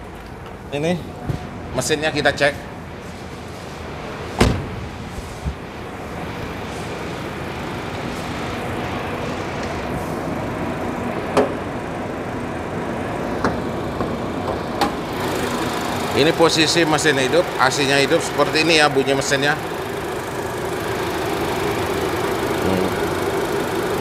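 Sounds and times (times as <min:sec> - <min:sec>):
car engine idling: 0:00.0 - 0:24.0
car door shutting: 0:04.3 - 0:05.6.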